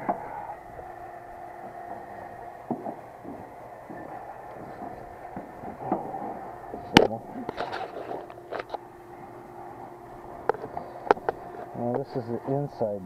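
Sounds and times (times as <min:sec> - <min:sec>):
rustling and scraping: 0:01.6 - 0:08.9, 0:09.7 - 0:12.1.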